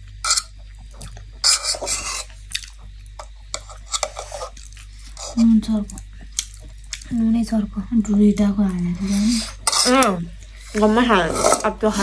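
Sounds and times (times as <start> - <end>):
food rustling while eaten: 0.5 - 7.1.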